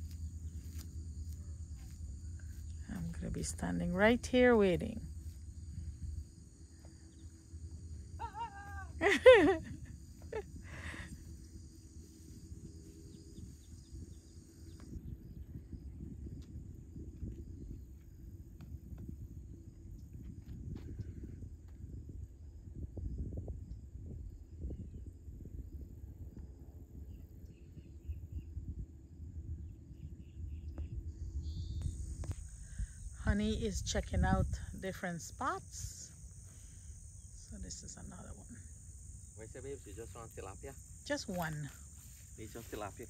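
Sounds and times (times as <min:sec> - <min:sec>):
outdoor background: 0:00.0 - 0:43.0
wavering animal call: 0:08.1 - 0:09.0
wind on microphone: 0:08.4 - 0:36.2.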